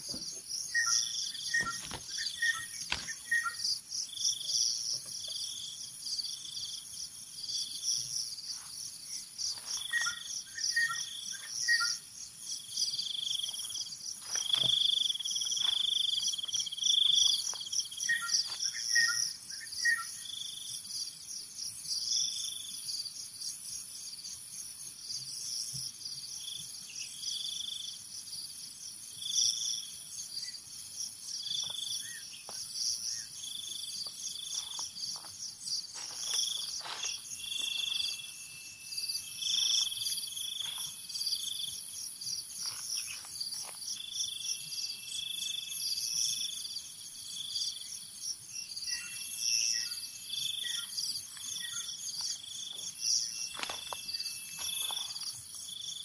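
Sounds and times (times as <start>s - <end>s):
bird chirps: 0.0s - 5.6s, 9.1s - 12.1s, 12.8s - 20.6s, 31.4s - 41.8s, 48.6s - 56.0s
insect buzz and trill: 0.0s - 56.0s
short repeating insect notes: 31.3s - 56.0s.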